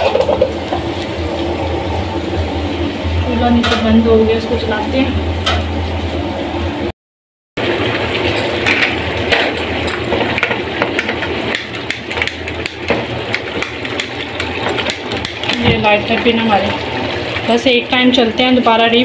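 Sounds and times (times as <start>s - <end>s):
pot of rice boiling: 0.0s - 6.9s, 7.6s - 19.0s.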